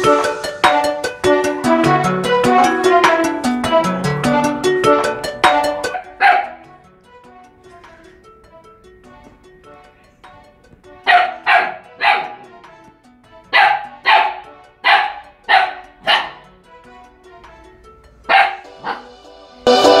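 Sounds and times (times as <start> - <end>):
background music: 0.0 - 20.0
puppy barking: 5.9 - 6.6, 11.1 - 12.4, 13.5 - 16.4, 18.3 - 19.1.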